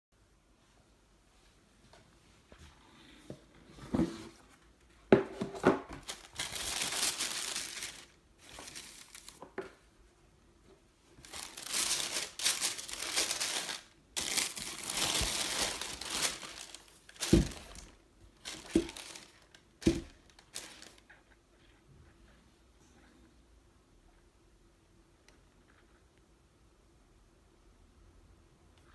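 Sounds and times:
tissue paper crinkling: 6.0s - 9.4s, 11.2s - 21.1s.

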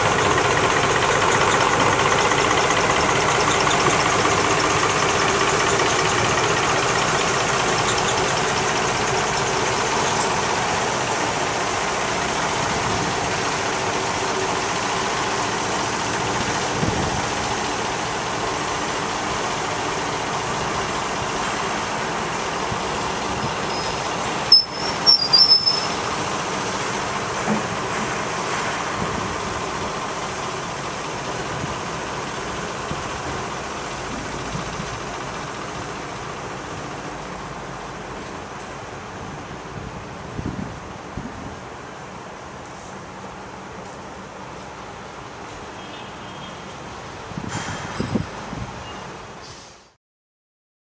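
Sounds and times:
diesel locomotive engine running: 0.0s - 49.4s
high squeals and clicks: 1.0s - 10.4s, 23.4s - 26.2s.

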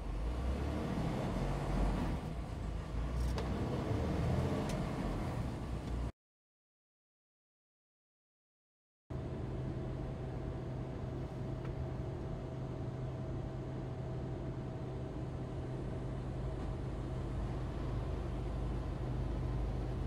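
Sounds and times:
truck engine and road drone: 0.0s - 6.1s, 9.1s - 20.0s.

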